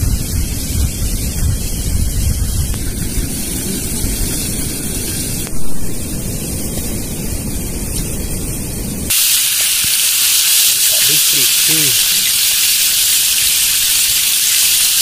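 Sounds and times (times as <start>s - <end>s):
wind rumbling on microphone: 0.0s - 10.0s
hot oil sizzling: 0.0s - 15.0s.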